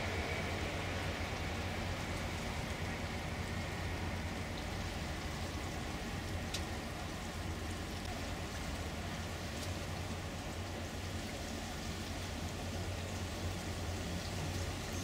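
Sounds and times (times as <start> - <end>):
electric train whine: 0.0 - 9.3
low hum of ship engine: 0.0 - 15.0
rushing water: 0.0 - 15.0.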